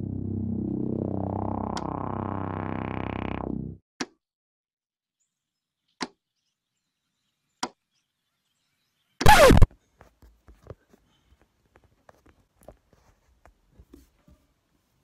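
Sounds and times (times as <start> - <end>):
falling pitch sweep: 0.0 - 3.8
synthesizer intro music: 0.0 - 3.8
short sharp sound effects: 9.2 - 9.7.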